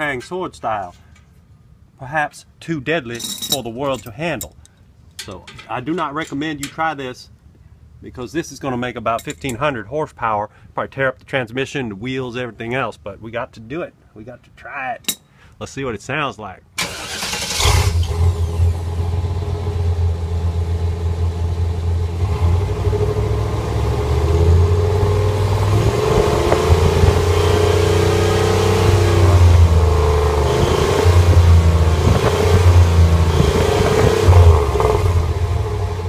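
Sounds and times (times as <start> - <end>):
truck engine revving: 16.8 - 36.0
exhaust whistle tone: 26.7 - 28.7, 33.1 - 34.4.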